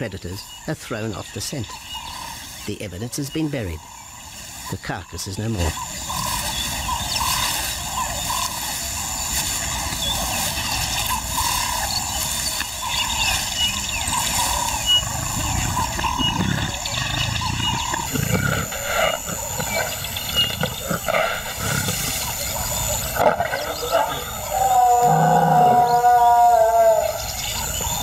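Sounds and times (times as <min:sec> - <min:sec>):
lioness roaring: 0:14.5 - 0:28.0.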